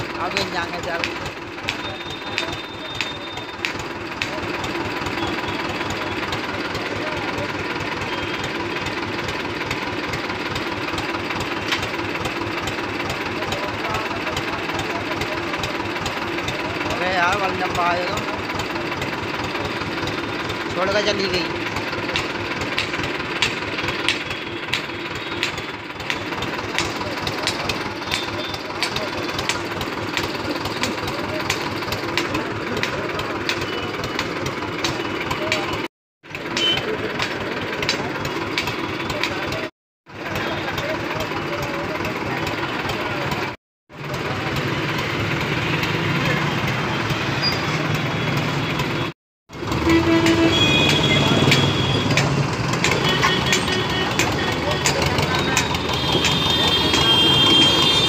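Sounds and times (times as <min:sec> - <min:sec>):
diesel tractor engine idling: 0:00.0 - 0:58.0
sharp ticking: 0:49.5 - 0:58.0.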